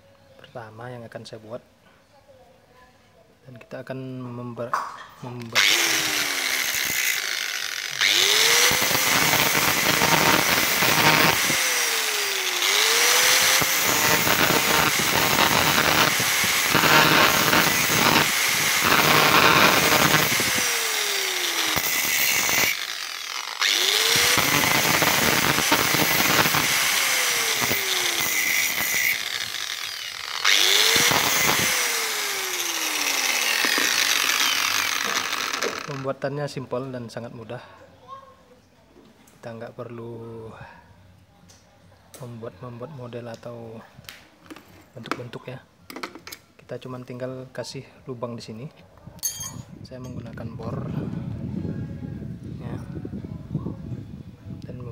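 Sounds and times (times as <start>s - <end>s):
grinder grinding metal: 5.4s - 36.2s.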